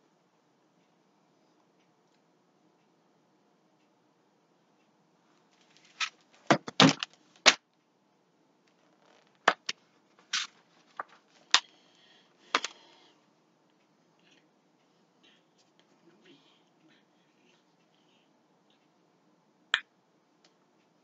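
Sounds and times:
pages rustling: 5.6 - 7.6, 9.0 - 11.6
book knocking and taps: 6.5 - 7.1.

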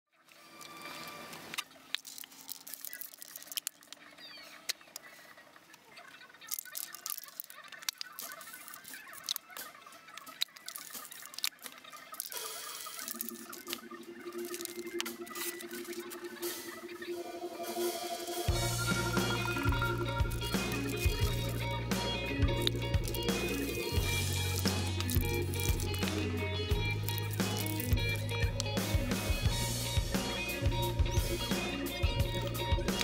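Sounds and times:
scattered clicks and crackles: 0.3 - 17.1, 18.8 - 33.0
sustained low held tone: 15.7 - 20.9.

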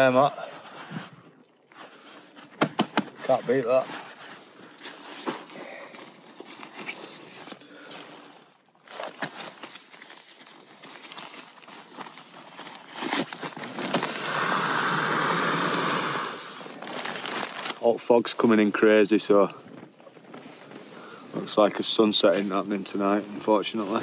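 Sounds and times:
nylon fabric rustling: 1.7 - 14.4, 16.6 - 18.6, 19.5 - 24.0
loud steady hiss: 14.0 - 16.8.

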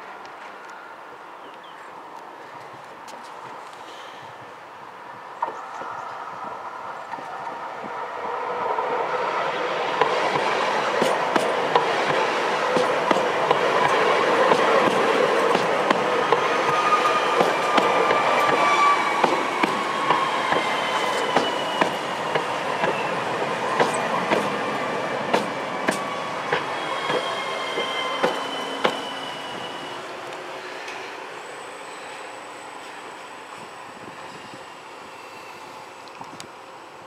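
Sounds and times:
tram wheel and rail noise: 0.0 - 37.0
wheels clicking over rail joints: 25.2 - 27.3.

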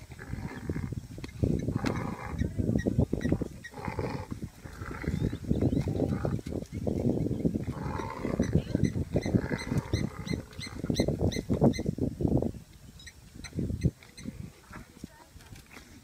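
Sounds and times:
dogs growling: 0.0 - 1.0.

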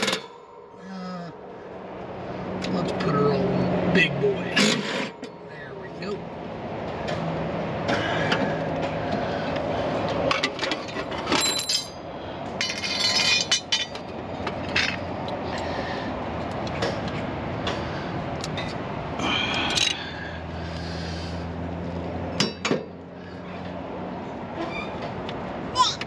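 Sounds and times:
steady low hum: 0.0 - 11.1
metal tools clinking: 10.4 - 12.0, 12.6 - 15.0.

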